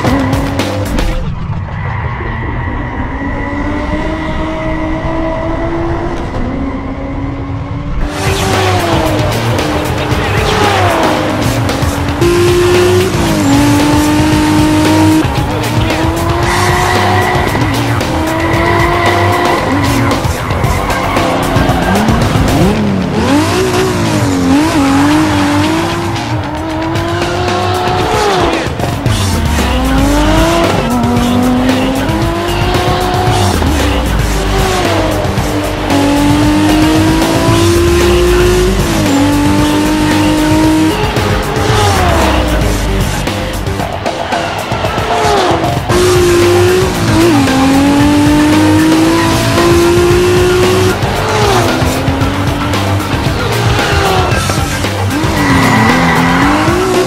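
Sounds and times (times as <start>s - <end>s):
background music: 0.0s - 57.0s
racing car engine revving: 0.0s - 57.0s
tyres squealing: 44.3s - 57.0s.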